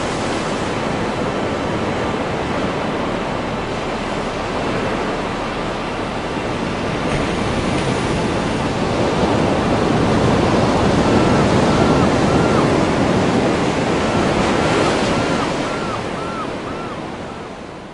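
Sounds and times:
waves breaking: 0:00.0 - 0:17.9
faint high-pitched calls: 0:14.0 - 0:17.4.

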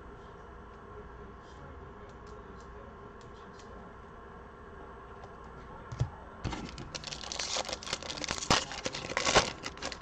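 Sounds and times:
foil wrapper tearing and crinkling: 0:06.5 - 0:10.0.

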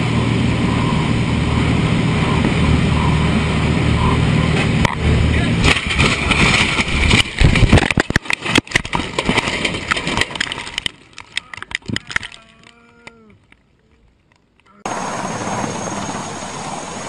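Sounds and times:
plane crashing through trees: 0:00.0 - 0:10.1.

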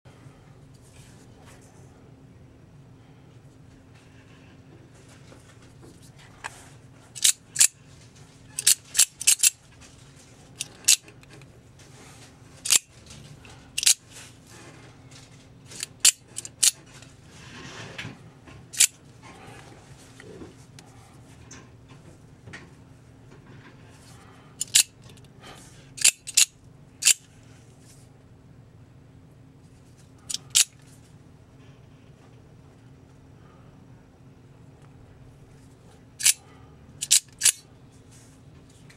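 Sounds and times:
knife blade metallic clicks: 0:07.2 - 0:07.7, 0:08.6 - 0:09.5, 0:13.8 - 0:14.0, 0:24.6 - 0:24.9, 0:26.0 - 0:27.2, 0:37.0 - 0:37.6.

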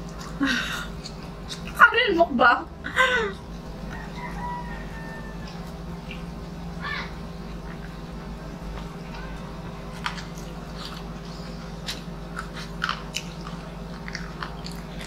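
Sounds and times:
crunches and mouth smacks: 0:00.0 - 0:01.8
people chewing: 0:00.0 - 0:01.8, 0:02.8 - 0:15.0
steady low hum: 0:00.0 - 0:15.0.

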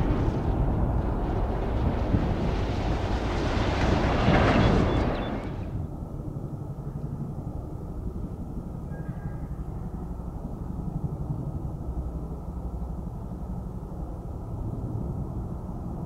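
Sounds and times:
rushing noise: 0:00.0 - 0:05.8
steady low rumble: 0:00.0 - 0:16.0.

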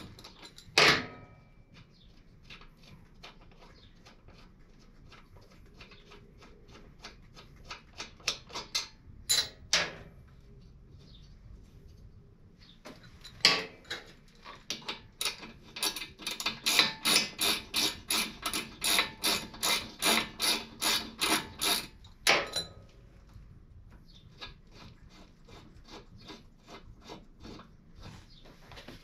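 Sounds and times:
hand ratchet clicking: 0:15.2 - 0:21.9.

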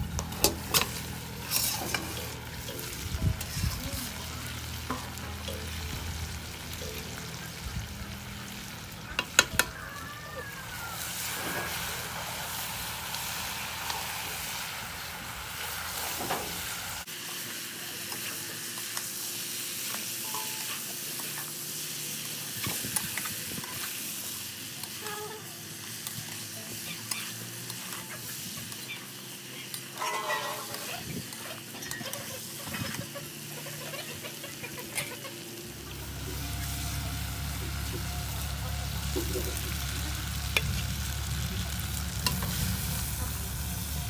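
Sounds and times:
chicken sizzling in a pan: 0:00.0 - 0:44.0
metal spatula scraping a pan: 0:00.3 - 0:04.3, 0:29.9 - 0:35.2.

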